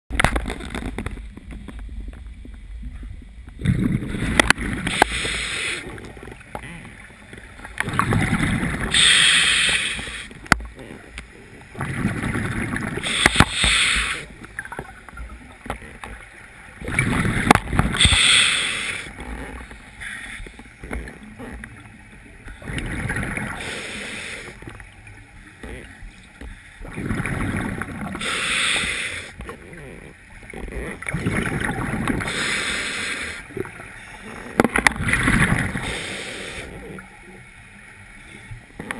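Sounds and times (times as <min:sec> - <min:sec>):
bubbling of exhaled air: 0:02.0 - 0:24.9, 0:25.6 - 0:26.1, 0:26.8 - 0:37.5
regulator breathing hiss: 0:04.8 - 0:05.9, 0:08.9 - 0:10.4, 0:13.0 - 0:14.4, 0:17.9 - 0:19.1, 0:23.5 - 0:24.6, 0:28.2 - 0:29.4, 0:32.2 - 0:33.5, 0:35.7 - 0:36.8.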